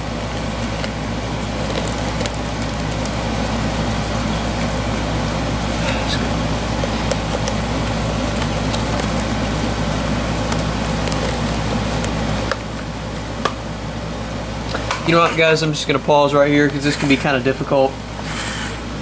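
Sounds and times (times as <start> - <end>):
low hum and hiss: 0.0 - 19.0.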